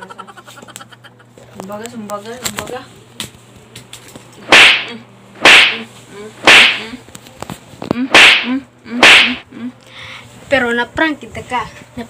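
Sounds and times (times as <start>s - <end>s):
sharp whip-like cracks: 4.4s - 7.0s, 8.1s - 9.4s.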